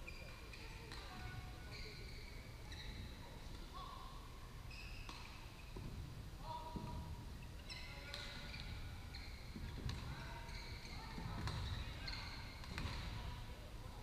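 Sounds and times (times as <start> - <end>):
shoes squeaking on court: 0.0 - 3.7, 4.6 - 13.4
racket hitting shuttlecock: 12.6 - 13.2.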